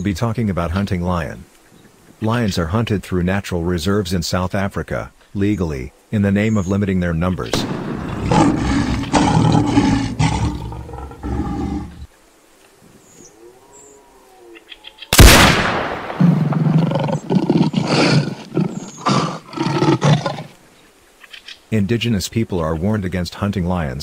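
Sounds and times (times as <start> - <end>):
loud gunshot: 7.5 - 8.6, 15.2 - 16.7
lion growling and roaring: 7.6 - 12.1, 16.2 - 20.6.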